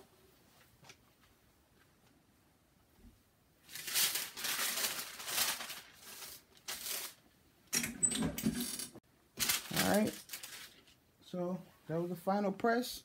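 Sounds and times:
parchment paper crinkling: 3.7s - 7.2s, 9.4s - 11.0s.

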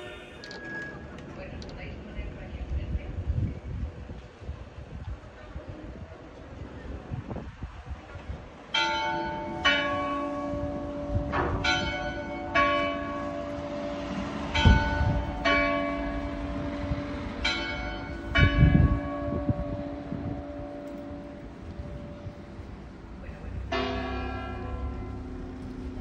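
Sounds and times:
wind buffeting microphone: 1.3s - 26.0s
tower bells ringing: 8.7s - 22.7s, 23.6s - 26.0s.

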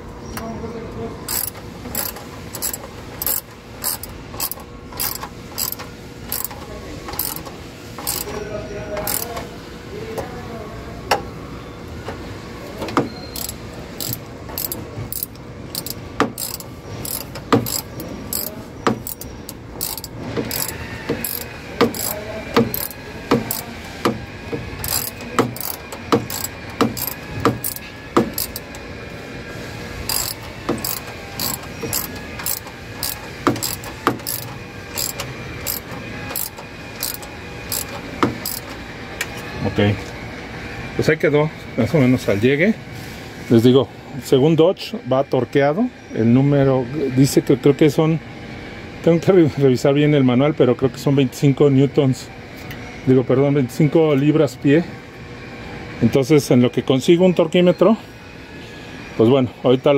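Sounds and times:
hand ratchet clicking: 1.3s - 8.3s, 9.0s - 9.4s, 13.4s - 23.7s, 24.8s - 28.8s, 30.1s - 38.8s.

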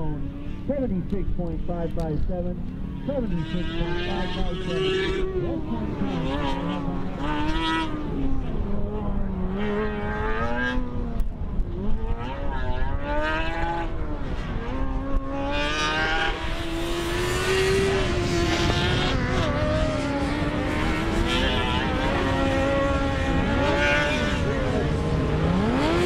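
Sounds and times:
race car engine revving: 0.0s - 26.0s.

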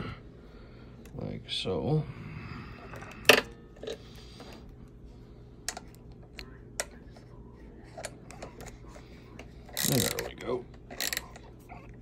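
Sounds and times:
ratchet clicking: 9.8s - 10.2s.

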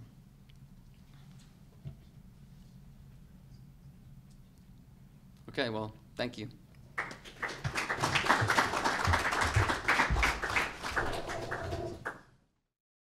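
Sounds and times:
audience applauding: 7.0s - 12.2s.

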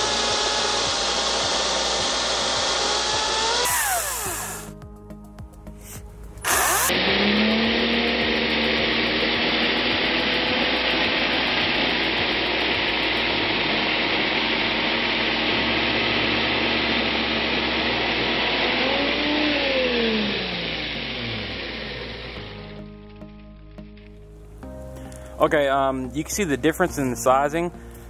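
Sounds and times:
cordless chainsaw whirring: 0.0s - 4.8s, 5.8s - 22.6s.

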